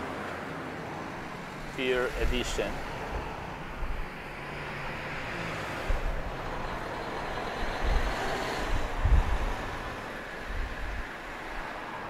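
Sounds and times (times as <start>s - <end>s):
road vehicles hissing: 0.0s - 12.0s
wind buffeting microphone: 2.1s - 4.3s, 5.0s - 11.7s.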